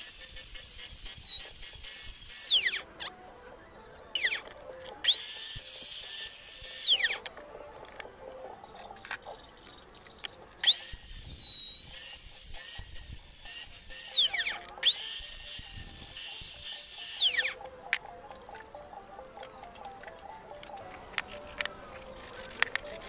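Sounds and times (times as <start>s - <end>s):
router whining through wood: 0.0s - 17.7s.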